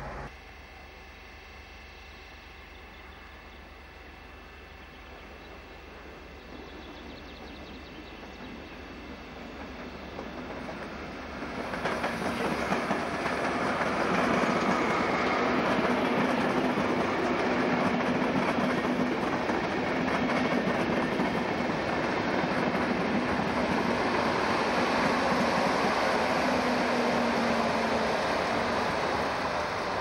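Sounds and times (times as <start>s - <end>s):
low diesel engine note: 0.0s - 5.1s
train wheels rumbling on rails: 2.5s - 30.0s.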